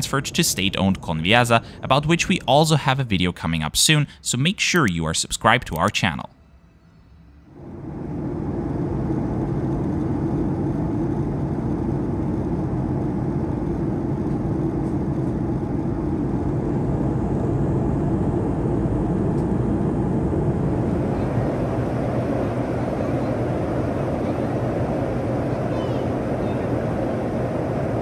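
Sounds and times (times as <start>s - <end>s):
airplane cabin engine drone: 0.0s - 6.3s, 7.1s - 28.0s.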